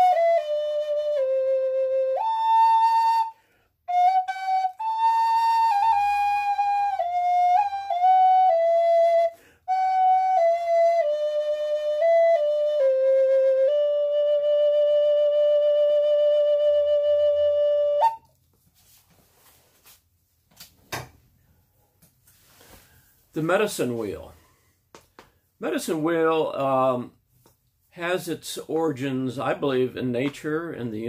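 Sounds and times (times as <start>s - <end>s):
wooden flute melody: 0.0s - 18.4s.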